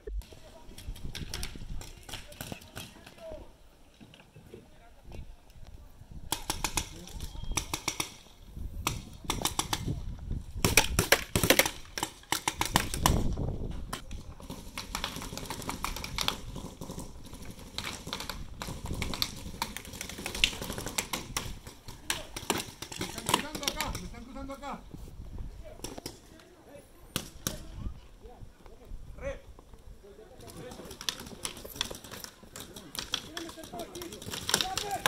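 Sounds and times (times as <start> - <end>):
paintball markers firing: 6.3 - 8.2, 8.8 - 10.0, 10.6 - 13.3, 13.9 - 24.2, 30.4 - 35.0.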